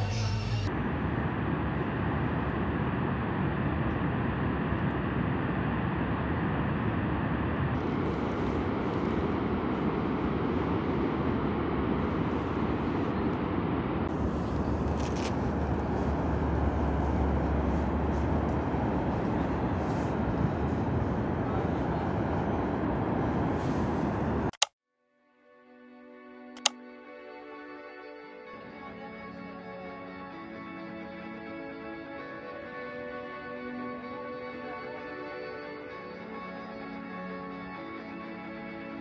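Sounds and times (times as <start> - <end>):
deep low rumble: 0.0 - 24.5.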